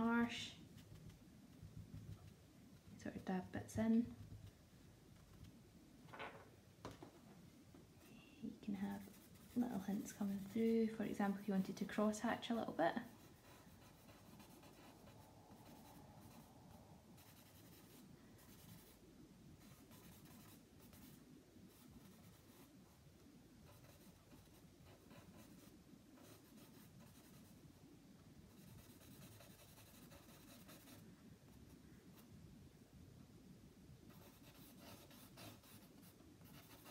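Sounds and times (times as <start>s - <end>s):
charcoal scratching on paper: 8.8s - 11.8s, 23.7s - 27.5s, 28.6s - 31.0s, 34.1s - 36.9s.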